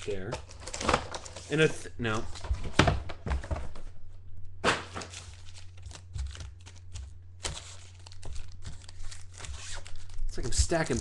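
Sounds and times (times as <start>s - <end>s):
foil packs crinkling: 0.0s - 2.5s, 4.7s - 11.0s.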